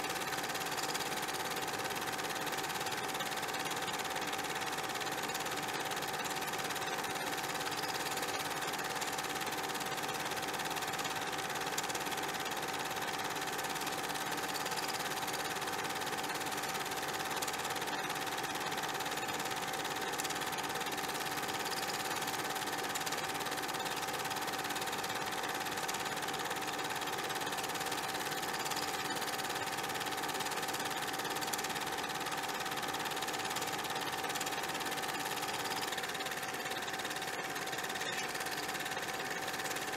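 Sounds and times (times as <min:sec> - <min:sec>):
mechanical whirring hum: 0:00.0 - 0:39.9.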